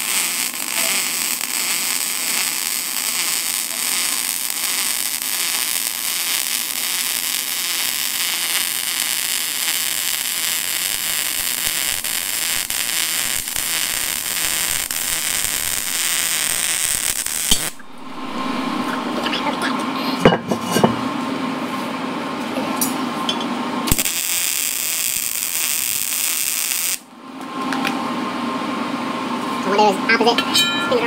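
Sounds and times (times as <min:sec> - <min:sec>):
welding arc crackling hiss: 0:00.0 - 0:19.4, 0:23.9 - 0:27.1.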